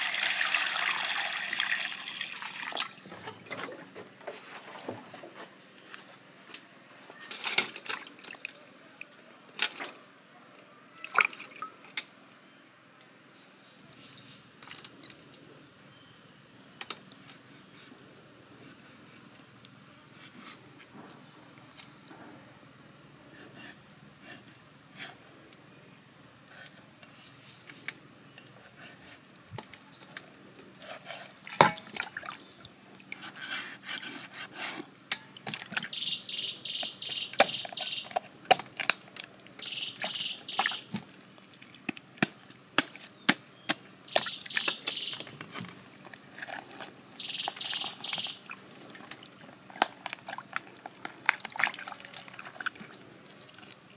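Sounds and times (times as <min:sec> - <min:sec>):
water splashing in metal bowl: 0:31.5 - 0:32.4, 0:51.2 - 0:53.7.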